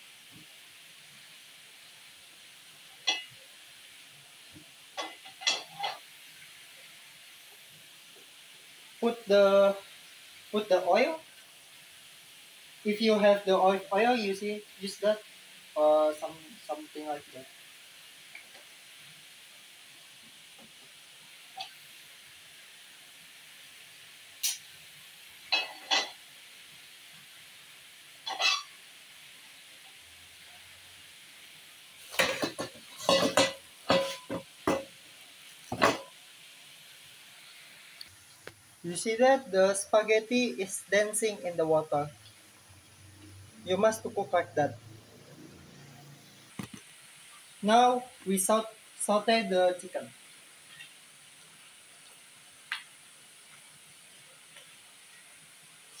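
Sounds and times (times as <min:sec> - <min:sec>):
faint steady hiss: 0:00.0 - 0:56.0
kitchen knocks and clatters: 0:05.0 - 0:06.0, 0:32.1 - 0:34.9, 0:35.7 - 0:36.1.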